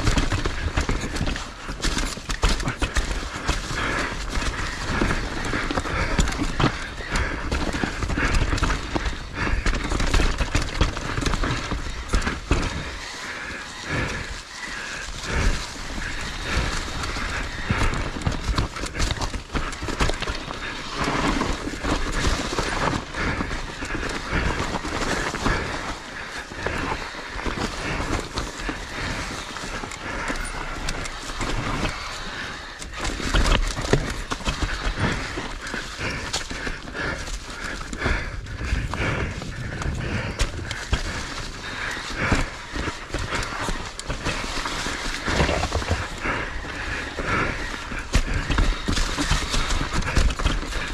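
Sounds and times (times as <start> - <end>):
skis scraping on packed snow: 0.0 - 50.9
wind rushing over microphone: 38.1 - 41.6.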